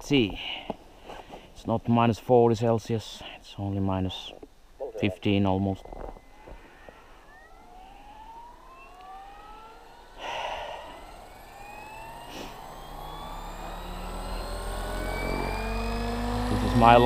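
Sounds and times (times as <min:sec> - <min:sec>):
helicopter rotor whine: 0:05.0 - 0:17.0.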